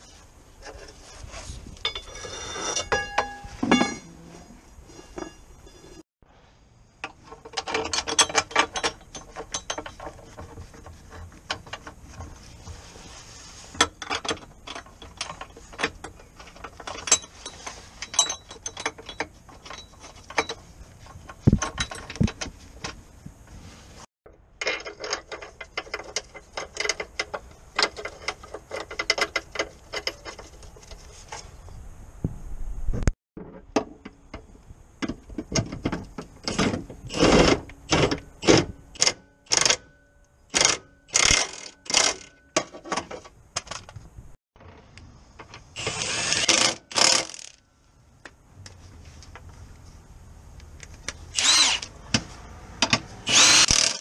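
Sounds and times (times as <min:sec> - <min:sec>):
hand ratchet clicking: 0:45.8 - 0:47.6, 0:53.3 - 0:54.0.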